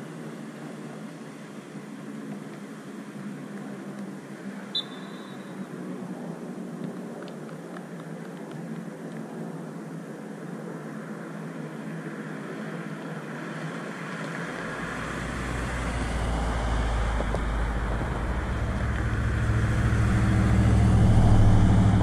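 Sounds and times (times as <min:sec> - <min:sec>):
vehicle engine: 0:14.4 - 0:22.0
low rumble: 0:14.6 - 0:22.0.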